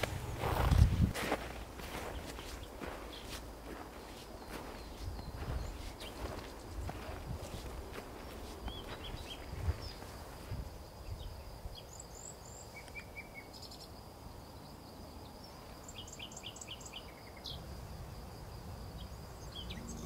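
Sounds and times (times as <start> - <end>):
footsteps in snow: 0.0 - 10.6
low rumble of outdoor air: 0.0 - 12.6, 17.5 - 20.0
songbirds chirping: 0.0 - 20.0.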